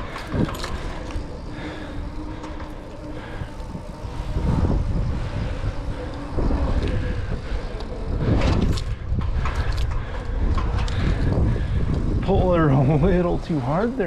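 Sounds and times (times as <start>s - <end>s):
bike tyre rumble on concrete: 0.0s - 14.0s
wind noise on microphone: 0.0s - 14.0s.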